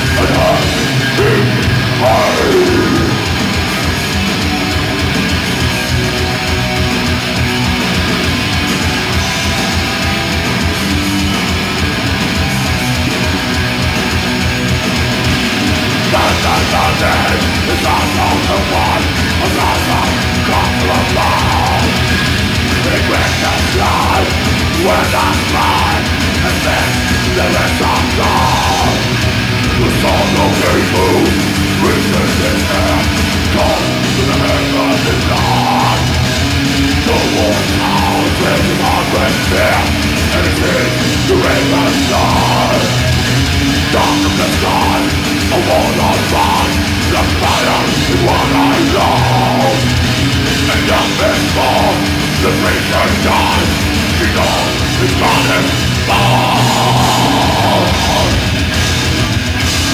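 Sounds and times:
deep growled vocal: 0.0 - 9.4, 12.6 - 59.3
distorted guitars: 0.0 - 59.9.

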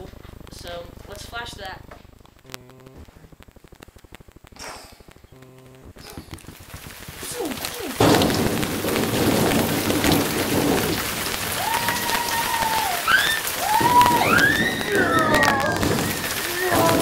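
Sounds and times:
rain hissing: 0.0 - 17.0
low thunder rumbling: 6.5 - 17.0.

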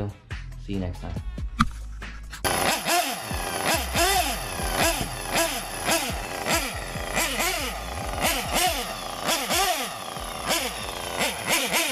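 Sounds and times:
small engine revving: 2.4 - 11.9.

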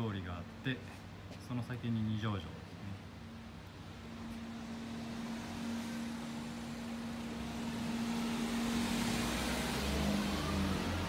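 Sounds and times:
traffic noise: 0.0 - 11.0
low hum: 2.8 - 11.0
vehicle approaching: 3.3 - 11.0.

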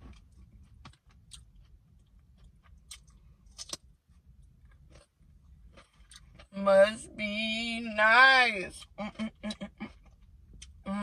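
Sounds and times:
person chewing food: 0.0 - 6.6, 8.8 - 10.9
faint low hum: 0.0 - 11.0
wet mouth clicks and smacks: 2.8 - 3.8.

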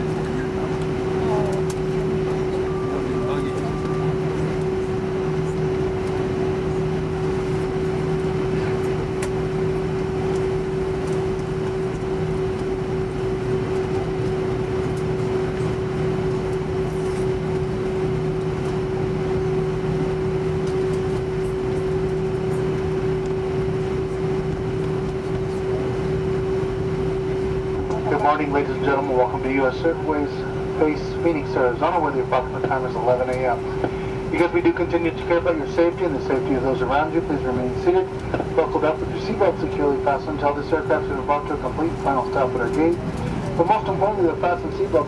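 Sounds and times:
constant mid-pitched tone: 0.0 - 45.0
jet engines rumbling: 0.0 - 45.0.

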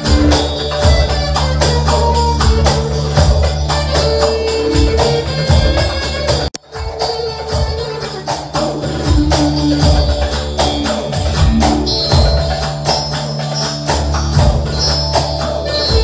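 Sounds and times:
keyboard playing dance melody: 0.0 - 16.0.

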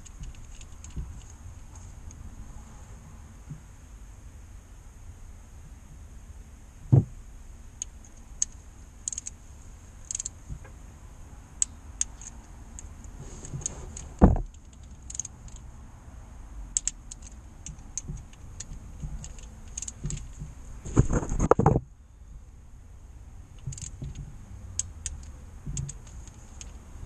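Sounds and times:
socket wrench ratchet clicking: 7.8 - 9.4, 10.0 - 10.4, 14.0 - 15.7, 16.8 - 20.4, 23.6 - 26.9.

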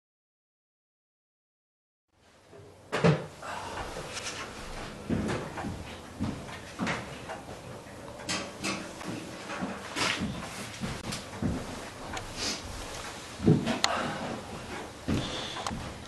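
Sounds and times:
knocks and bumps: 2.9 - 7.6, 8.2 - 16.0.

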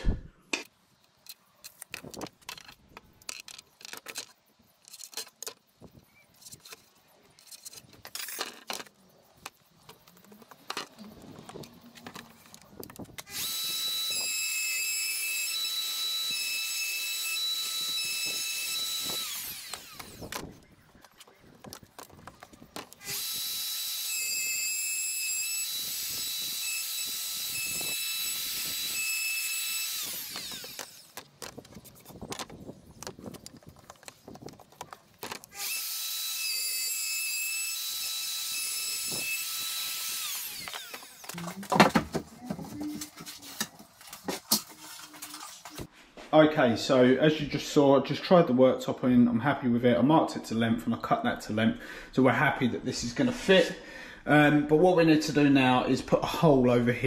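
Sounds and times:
router whining: 10.2 - 45.9.

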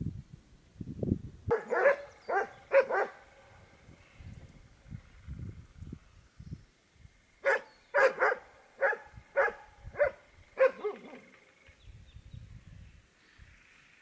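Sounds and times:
dog barking: 1.5 - 3.2, 7.4 - 11.3.

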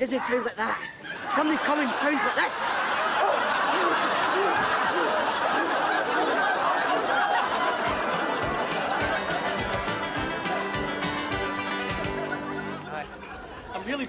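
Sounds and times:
studio audience laughing: 0.8 - 14.0
music: 7.7 - 13.8.

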